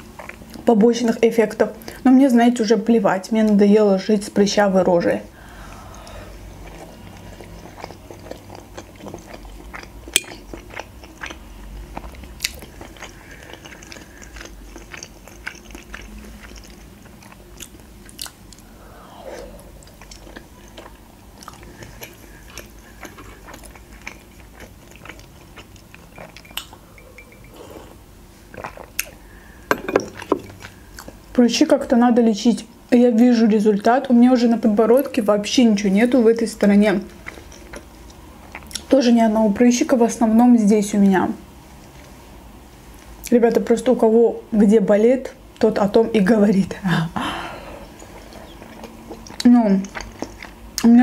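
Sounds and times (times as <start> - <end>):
chewing dumplings: 0.0 - 0.7, 6.0 - 18.7, 19.8 - 29.2, 30.0 - 31.3, 35.9 - 39.0, 47.9 - 51.0.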